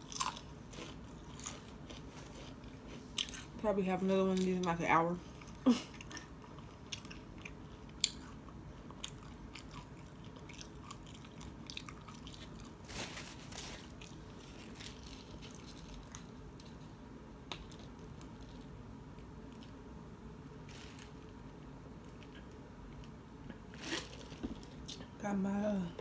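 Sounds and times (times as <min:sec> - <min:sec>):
chewing and crunching food: 0:00.0 - 0:19.8, 0:20.6 - 0:25.2.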